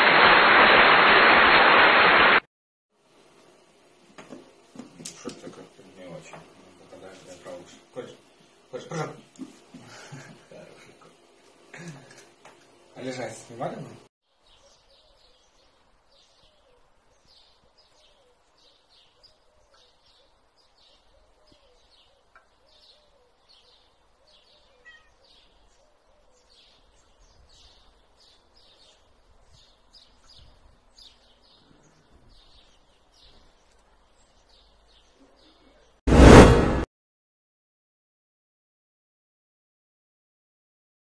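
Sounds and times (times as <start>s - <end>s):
small bird chirping: 14.3s - 35.9s.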